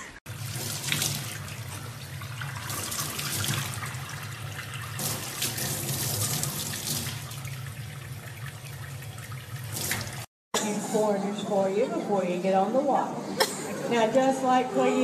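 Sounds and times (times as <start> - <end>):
tap water splashing into sink: 0.3 - 10.3.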